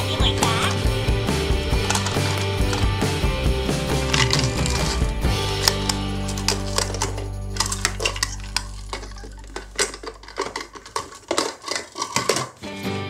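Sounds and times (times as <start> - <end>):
background music: 0.0 - 13.0
plastic toy car rattling and clicking: 1.7 - 3.1, 3.9 - 12.7.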